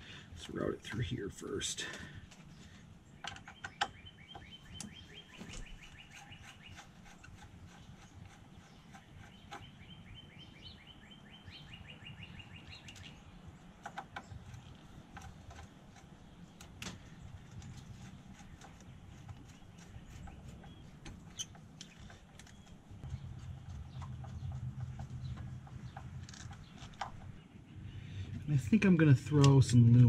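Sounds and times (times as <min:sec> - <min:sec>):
songbird trilling: 0:03.2 - 0:13.4, 0:18.0 - 0:27.8.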